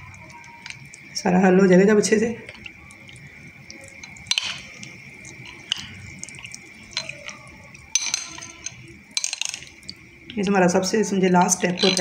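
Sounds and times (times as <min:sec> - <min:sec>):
spoon clinking on glass: 0:03.7 - 0:10.5, 0:11.2 - 0:12.0.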